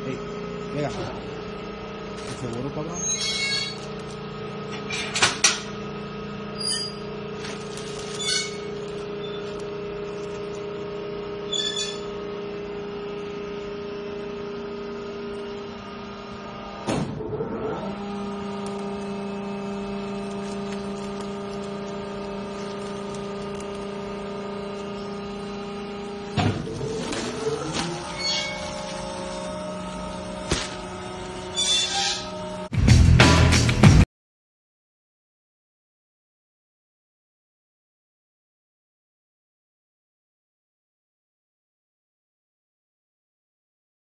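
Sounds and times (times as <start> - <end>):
hydraulic press pump humming: 0.0 - 32.7
plastic wrap rustling: 7.4 - 10.7, 18.1 - 25.6, 26.6 - 31.4.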